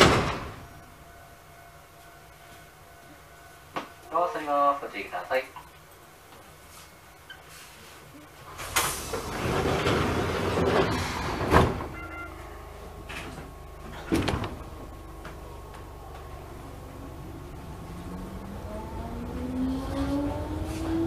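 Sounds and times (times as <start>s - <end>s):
train doors sliding shut: 0.0s - 1.0s, 7.3s - 16.3s, 19.9s - 21.0s
train hum: 0.0s - 21.0s.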